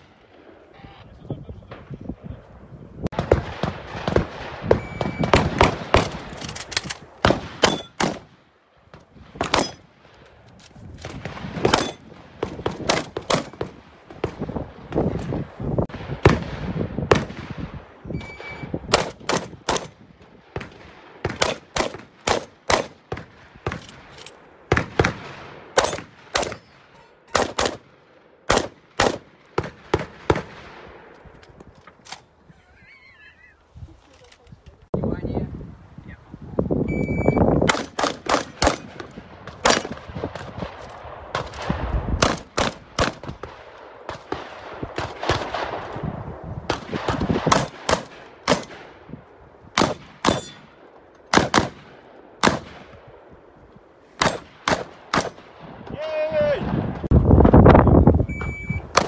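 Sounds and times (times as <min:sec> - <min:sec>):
rapid shotgun fire: 0:03.1 - 0:06.4, 0:07.0 - 0:08.4, 0:09.2 - 0:09.9, 0:11.1 - 0:15.2, 0:18.9 - 0:24.1, 0:24.7 - 0:26.6, 0:27.4 - 0:31.1, 0:37.6 - 0:45.9, 0:46.7 - 0:49.0, 0:49.8 - 0:52.9, 0:54.2 - 0:55.8
electronic shot timer beep: 0:04.8 - 0:05.3, 0:18.2 - 0:18.7, 0:36.9 - 0:37.5, 0:58.3 - 0:58.9.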